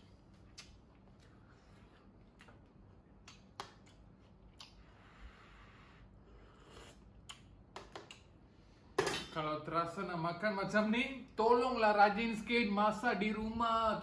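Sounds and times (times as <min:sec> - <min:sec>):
slurping soup: 0:04.9 - 0:07.2.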